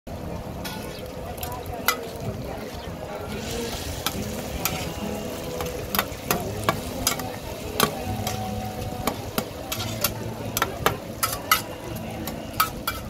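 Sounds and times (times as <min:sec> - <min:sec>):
frying sizzle: 0:00.1 - 0:13.0
metal spatulas clacking on pan: 0:05.6 - 0:13.0.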